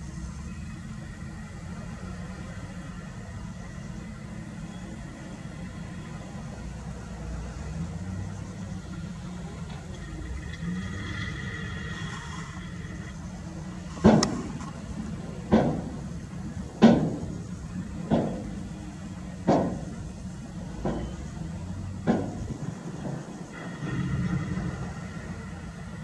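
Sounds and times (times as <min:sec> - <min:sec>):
dump truck diesel engine running: 0:00.0 - 0:26.0
loud bangs from dump body: 0:13.9 - 0:20.2, 0:22.0 - 0:25.3.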